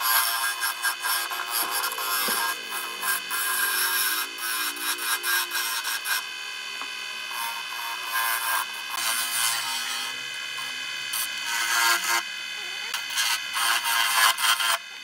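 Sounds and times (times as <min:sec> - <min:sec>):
chisel scraping spinning wood: 0:00.0 - 0:06.4
wood lathe whine: 0:00.0 - 0:15.0.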